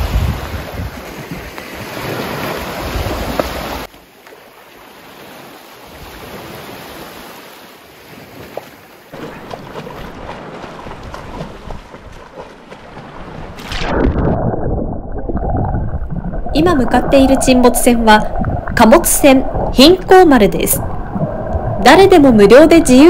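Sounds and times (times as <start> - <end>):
wind buffeting microphone: 0.0 - 2.1, 9.2 - 23.0
waves washing onto beach: 0.0 - 13.9
water splashing from swimmer: 8.1 - 14.4.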